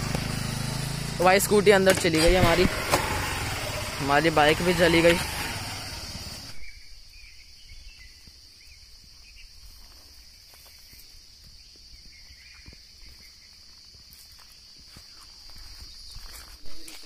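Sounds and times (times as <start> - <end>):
motorcycle engine: 0.0 - 6.7
insects droning in trees: 0.0 - 17.0.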